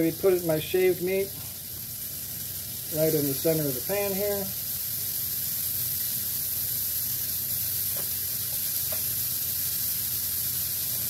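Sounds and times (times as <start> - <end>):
beef sizzling in a frying pan: 0.0 - 11.0.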